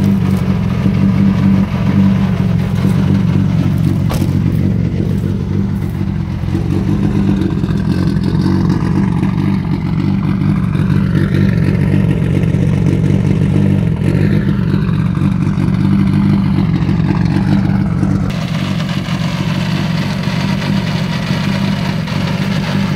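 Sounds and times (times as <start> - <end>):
car engine idling: 0.0 - 22.9.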